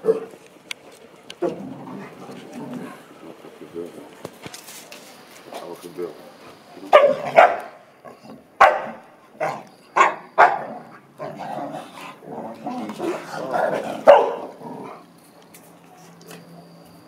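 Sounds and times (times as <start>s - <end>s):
dogs barking: 0.0s - 0.4s, 6.8s - 15.0s
dogs growling: 0.0s - 4.2s, 6.3s - 15.1s.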